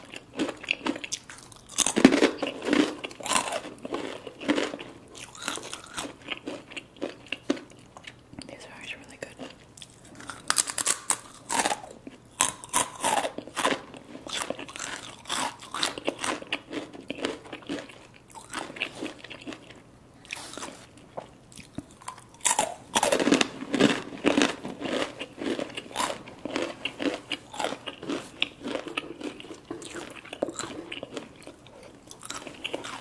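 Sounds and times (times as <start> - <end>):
chips crunching while chewed: 0.0 - 8.5, 9.2 - 33.0.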